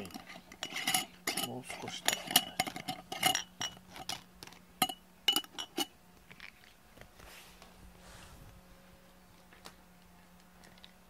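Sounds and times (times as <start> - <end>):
glass jars clinking: 0.0 - 4.2, 4.8 - 5.9.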